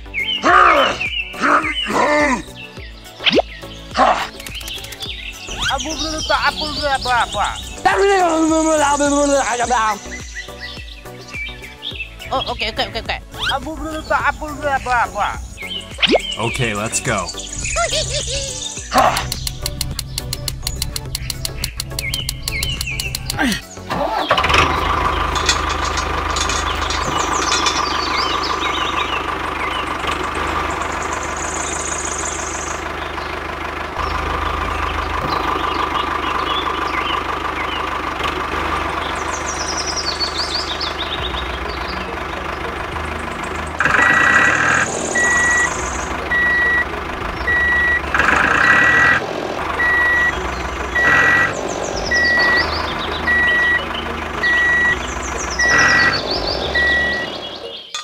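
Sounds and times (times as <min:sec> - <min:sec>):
tractor engine running: 0:00.0 - 0:58.0
reversing beep: 0:43.8 - 0:49.2, 0:49.8 - 0:55.0, 0:55.6 - 0:57.7.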